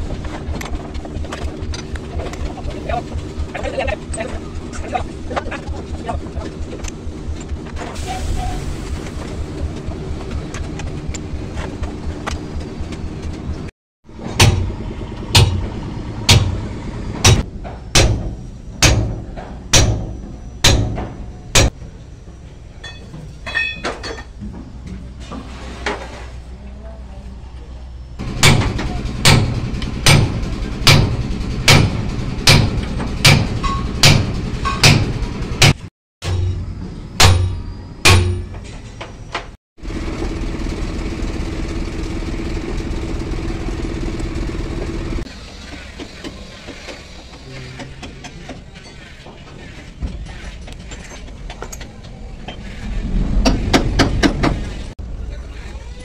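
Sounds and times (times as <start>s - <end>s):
loud metallic knocks: 14.1s - 21.8s, 28.2s - 38.7s, 53.4s - 54.8s
hammer striking metal: 14.2s - 16.6s, 17.2s - 21.8s, 28.4s - 38.6s
low rumble: 52.0s - 55.3s.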